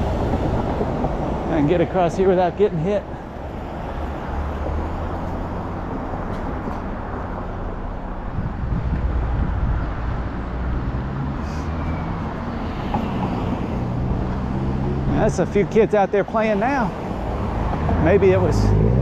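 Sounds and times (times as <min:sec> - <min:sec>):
car engines humming: 0:00.0 - 0:19.0.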